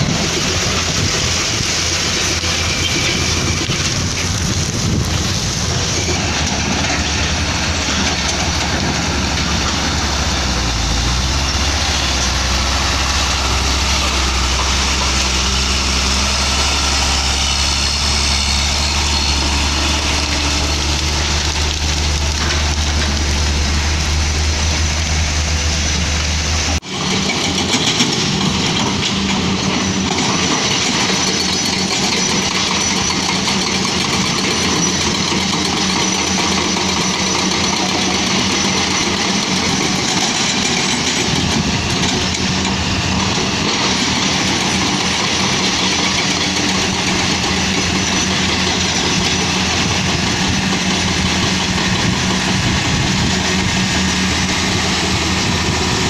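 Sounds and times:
heavy diesel engines running: 0.0s - 56.0s.

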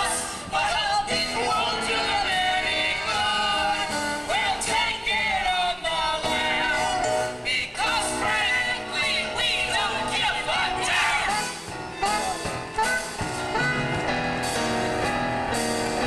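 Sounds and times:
man and women singing: 0.0s - 11.6s
instrumental accompaniment: 6.2s - 16.0s.

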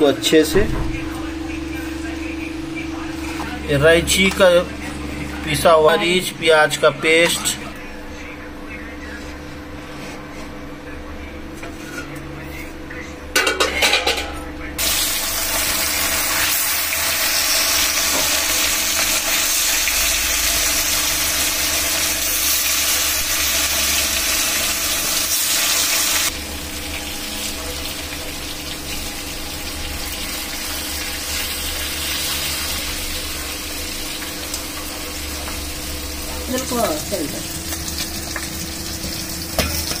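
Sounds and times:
fish frying sizzle: 14.8s - 40.0s.

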